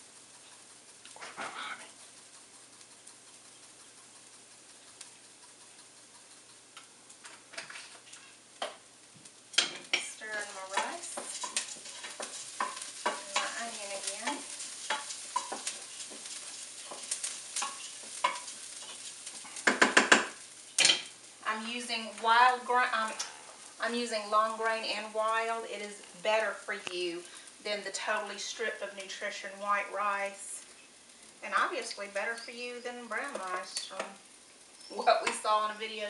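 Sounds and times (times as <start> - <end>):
rice sizzling: 0.0 - 36.0
spoon scraping a pan: 0.1 - 8.8, 9.5 - 21.2.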